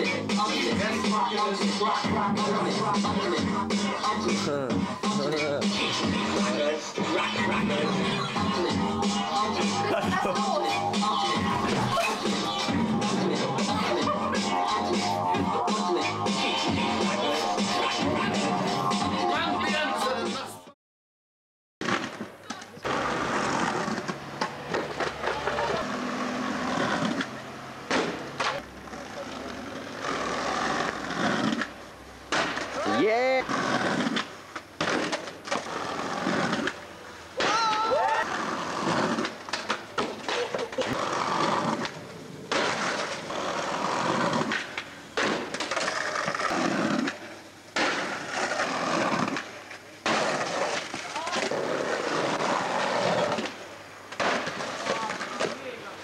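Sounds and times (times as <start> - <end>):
skateboard rolling on pavement: 0.0 - 20.4, 21.8 - 56.0
skateboard clacks: 21.8 - 36.8, 37.4 - 55.9.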